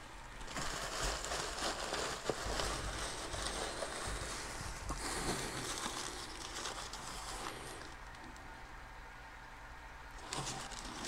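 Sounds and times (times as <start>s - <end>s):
paper rustling and crinkling: 0.4s - 8.4s, 10.2s - 11.0s.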